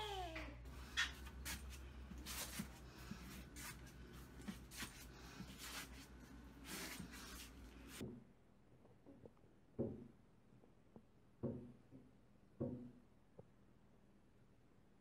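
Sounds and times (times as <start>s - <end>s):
steady low hum: 0.2s - 9.4s.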